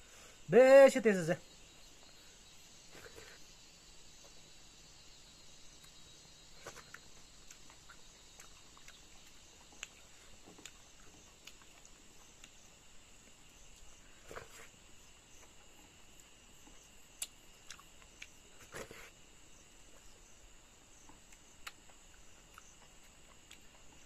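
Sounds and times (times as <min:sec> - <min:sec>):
high insect drone: 0:00.0 - 0:24.0
chewing smacks: 0:06.6 - 0:12.6, 0:21.1 - 0:24.0.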